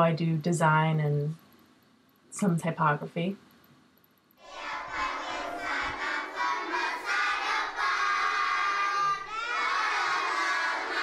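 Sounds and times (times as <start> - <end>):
children shouting and chanting: 4.4 - 11.0.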